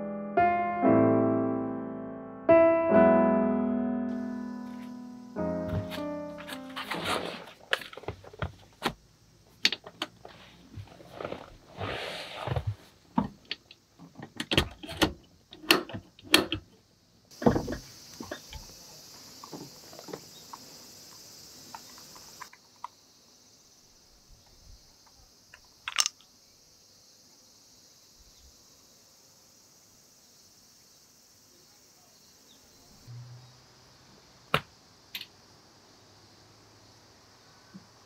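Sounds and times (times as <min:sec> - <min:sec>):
faint steady hiss: 0:04.1 - 0:38.0.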